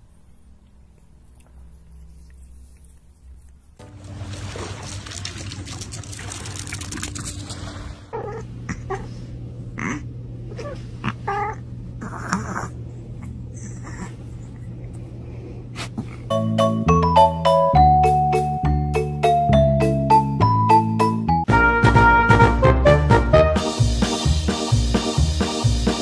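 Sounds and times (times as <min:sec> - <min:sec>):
steady low hum: 0:00.0 - 0:16.3
piano music: 0:03.8 - 0:05.0, 0:16.3 - 0:26.0
water splashing: 0:03.8 - 0:08.1
kitten mewing: 0:08.1 - 0:12.8.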